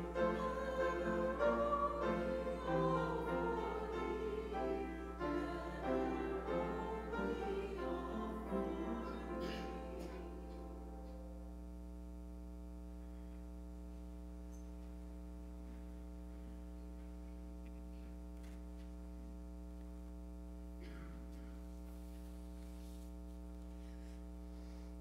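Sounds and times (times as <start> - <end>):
faint electrical mains hum: 0.0 - 25.0
soft rustles: 21.4 - 24.3.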